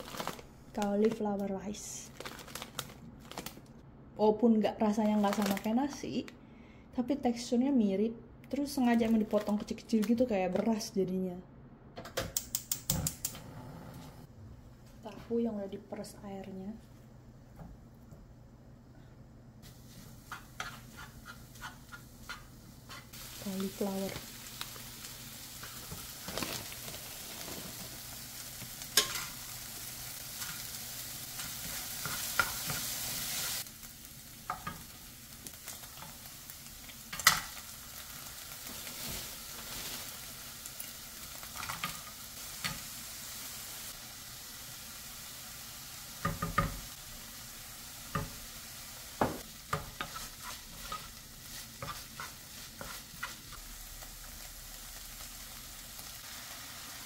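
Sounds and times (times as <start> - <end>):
food sizzling in frying pan: 19.6 - 57.0.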